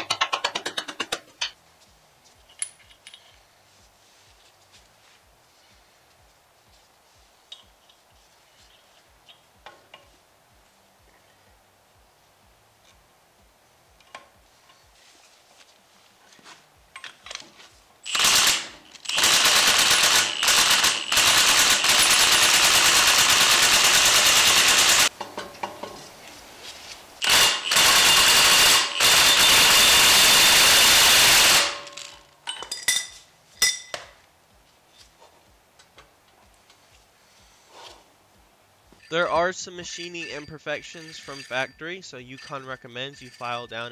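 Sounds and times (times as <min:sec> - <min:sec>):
tools clicking and clinking: 0:00.0 - 0:01.6, 0:02.4 - 0:03.4, 0:16.9 - 0:17.5, 0:31.6 - 0:34.2, 0:39.0 - 0:43.9
impact wrench hammering: 0:27.2 - 0:34.1.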